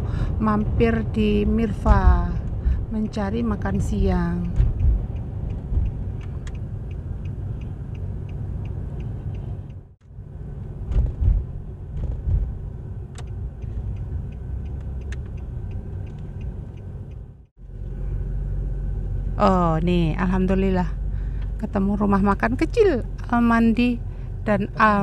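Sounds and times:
car road rumble from inside: 0.0 - 25.0
faint regular ticking: 1.7 - 9.8, 13.1 - 17.5.

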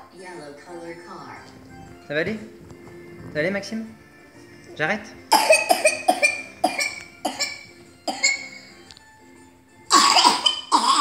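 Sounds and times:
child dry coughing: 5.3 - 8.6, 9.9 - 11.0.

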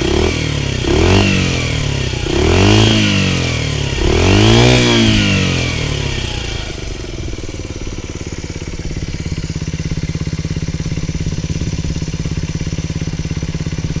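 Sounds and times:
small engine idling: 0.0 - 14.0.

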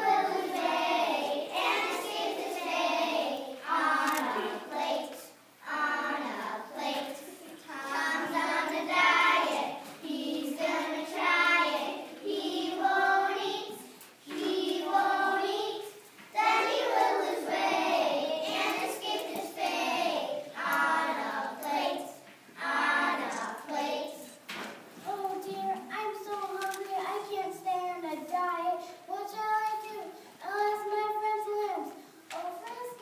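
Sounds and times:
young children singing: 0.0 - 25.9.

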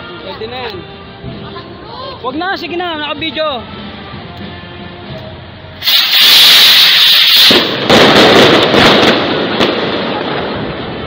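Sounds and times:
rockets rushing hiss: 5.8 - 10.2
crackling bangs: 5.8 - 11.0.

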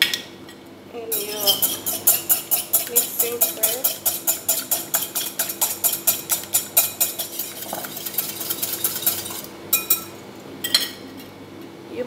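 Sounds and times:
egg beaten against glass bowl: 1.1 - 10.2.

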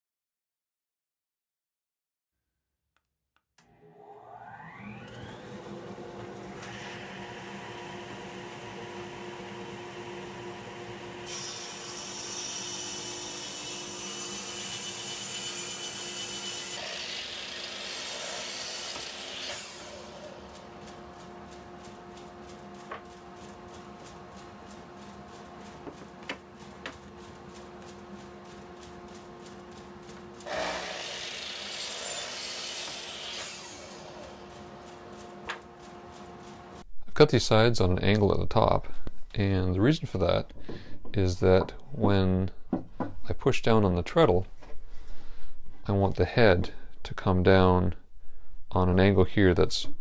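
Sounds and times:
table saw cutting wood: 3.6 - 21.8, 30.4 - 36.8
miter saw cutting board: 3.6 - 36.8
steady machine hum: 19.7 - 30.8.

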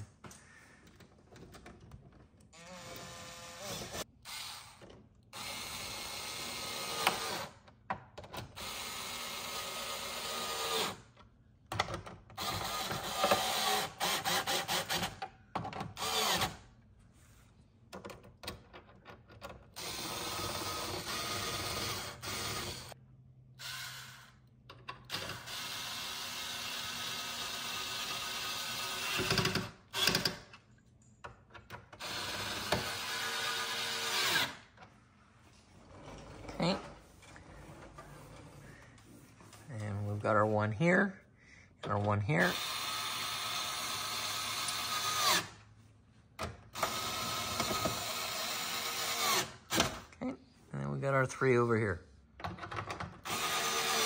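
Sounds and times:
electric screwdriver running: 53.2 - 54.0.

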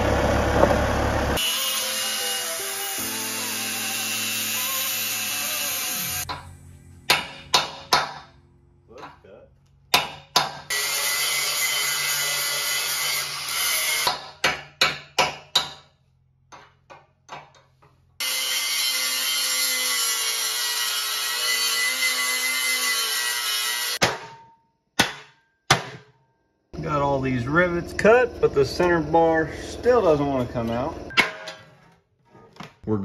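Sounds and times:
power tool running: 0.0 - 7.0, 18.2 - 24.0
hammer striking chisel on metal: 6.2 - 6.5, 7.1 - 8.4, 9.9 - 10.8, 13.8 - 17.6, 22.6 - 26.2.

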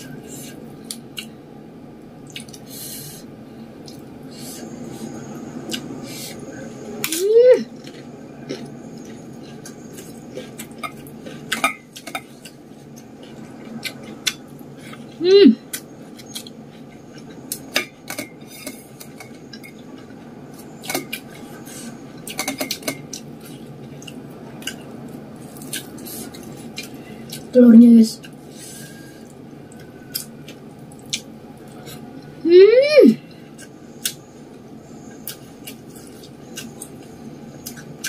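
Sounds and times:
chewing: 7.0 - 27.5, 28.2 - 32.3, 35.1 - 38.0.

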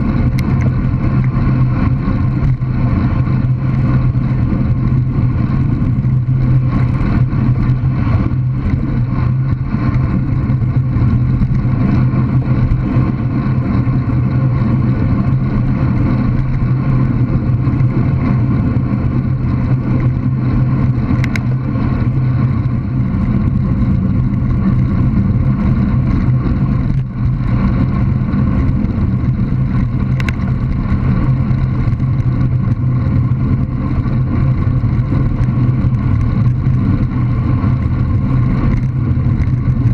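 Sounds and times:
road rumble: 0.0 - 39.9
high ticks: 0.2 - 2.7, 19.7 - 39.9.

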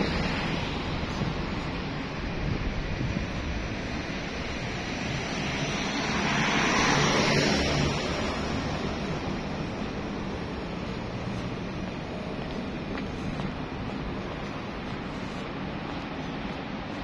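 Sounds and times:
street traffic hiss: 0.0 - 17.0
vehicle passing close: 4.6 - 12.4.

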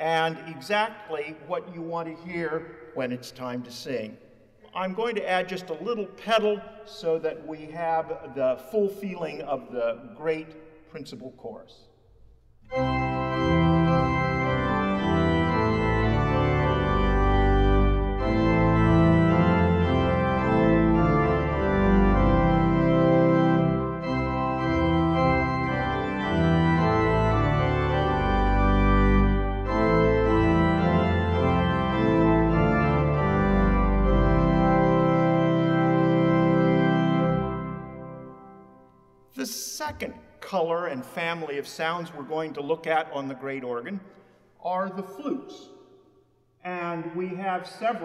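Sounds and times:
pipe organ chords: 0.0 - 11.4, 12.3 - 46.2
deep organ pedal bass notes: 12.7 - 38.7.

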